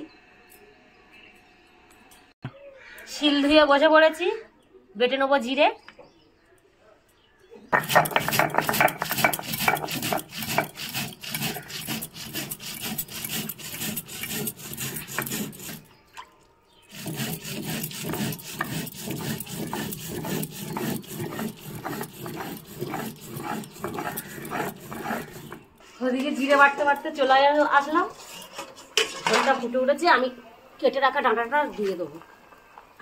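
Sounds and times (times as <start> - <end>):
stone roller grinding seeds: 7.7 - 16.0, 16.8 - 29.6.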